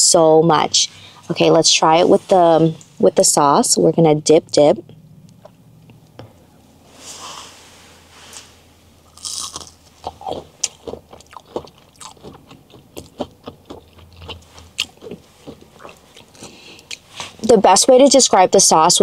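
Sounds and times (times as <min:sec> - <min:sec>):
crunchy chewing: 0:09.0 - 0:17.4.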